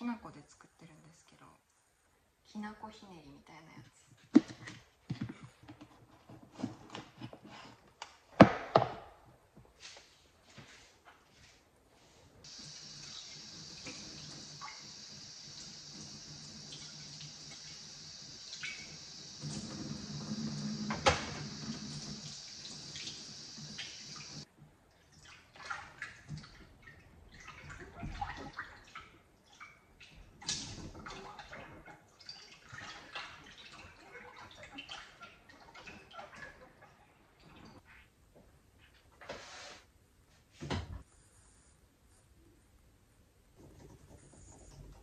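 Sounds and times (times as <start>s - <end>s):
glass being rinsed: 12.5s - 24.5s.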